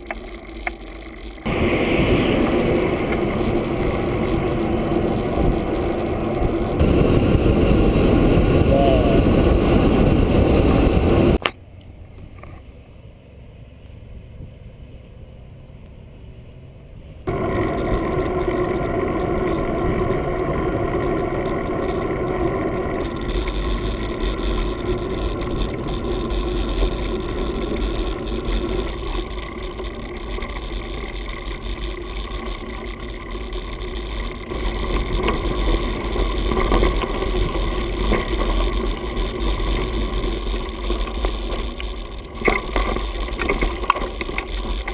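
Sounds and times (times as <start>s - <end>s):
wind noise: 0.0s - 11.4s, 17.1s - 44.9s
deep rumble on dirt track: 0.0s - 44.9s
muffled rumble of bike tyres: 0.0s - 44.9s.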